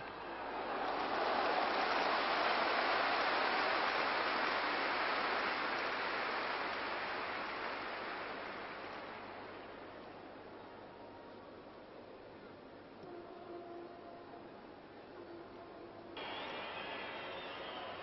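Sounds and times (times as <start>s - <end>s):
stadium crowd roaring: 0.0s - 9.6s, 16.2s - 18.0s.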